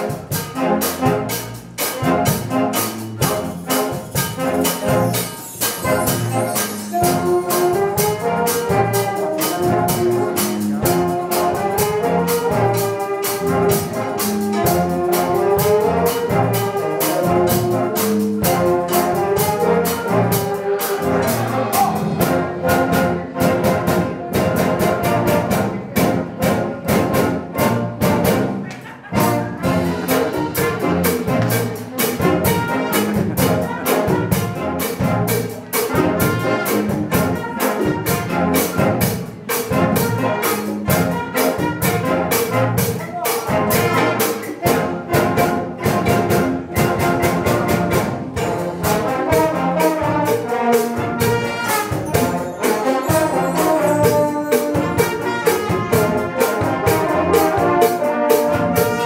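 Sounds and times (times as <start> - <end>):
wind orchestra playing: 0.0 - 59.0.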